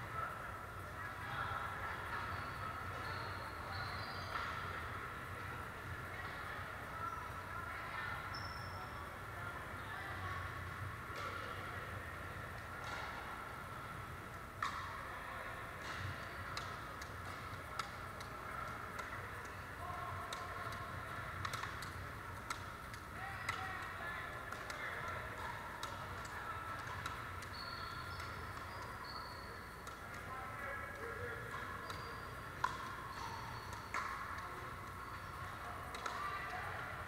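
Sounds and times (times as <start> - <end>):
faint murmur of voices: 0.0 - 37.0
ball bouncing on gym floor: 20.3 - 23.9, 31.0 - 36.8.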